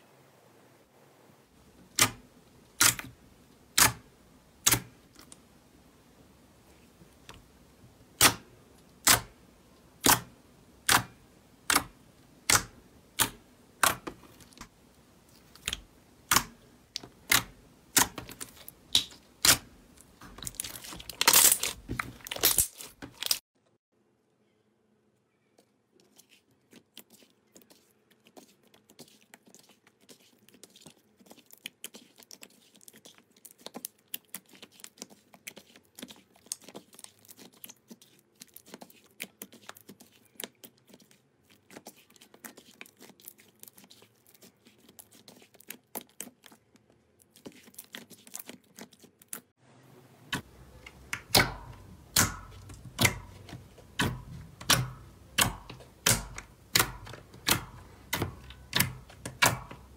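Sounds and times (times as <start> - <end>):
slime clicking and crackling: 15.3 - 23.4, 26.0 - 49.5, 50.3 - 59.9.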